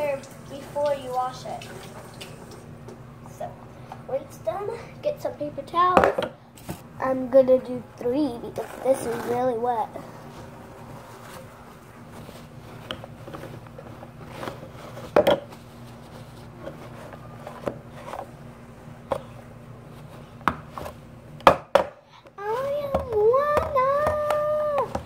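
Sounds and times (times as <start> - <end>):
steady low hum: 0.0 - 25.0
paper towel rustling: 8.3 - 18.8.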